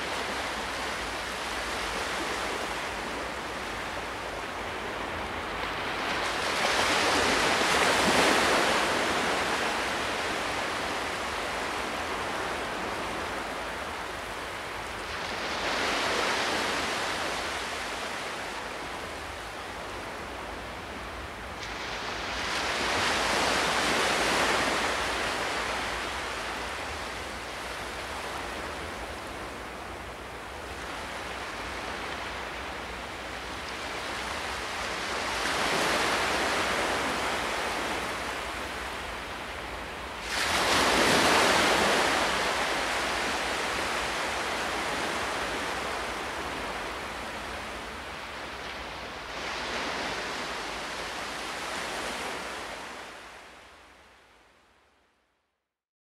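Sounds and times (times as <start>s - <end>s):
surf breaking on beach: 40.2s - 47.9s.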